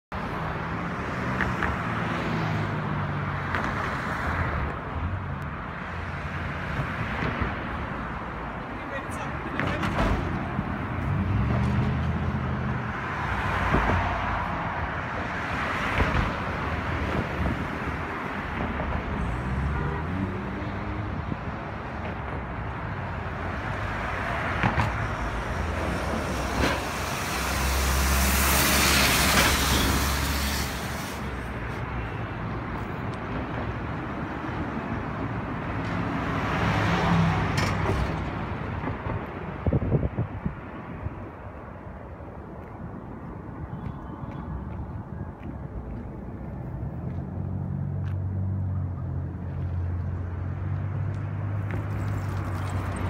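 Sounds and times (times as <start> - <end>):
road traffic: 0.1 - 53.0
loud vehicle passing: 10.5 - 22.0, 22.8 - 31.9, 34.6 - 40.4.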